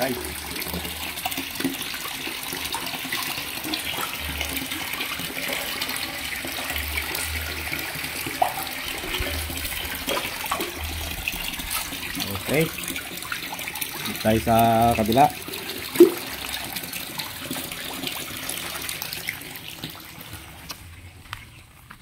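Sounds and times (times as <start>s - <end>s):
water rushing into a pond: 0.0s - 20.8s
dull low rumbles: 8.9s - 12.5s.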